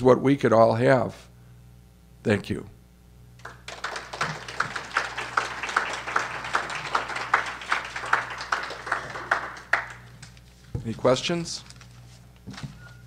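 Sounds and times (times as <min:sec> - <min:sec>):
audience applause: 0:03.4 - 0:10.4
nearby person clapping: 0:03.4 - 0:10.4.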